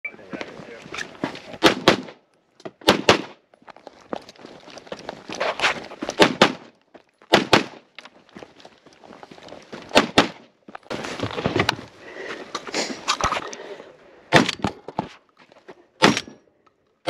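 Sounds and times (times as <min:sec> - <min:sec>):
gunshots: 0:01.6 - 0:02.2, 0:02.8 - 0:03.4, 0:06.2 - 0:06.7, 0:07.3 - 0:07.8, 0:09.9 - 0:10.5, 0:16.0 - 0:16.4.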